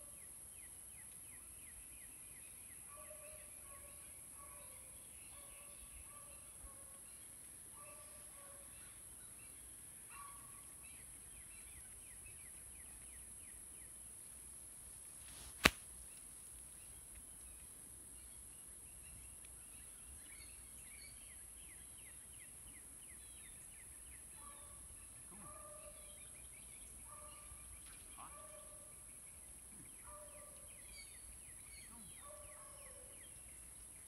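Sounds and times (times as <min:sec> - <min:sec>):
sharp click: 0:15.5 - 0:15.8.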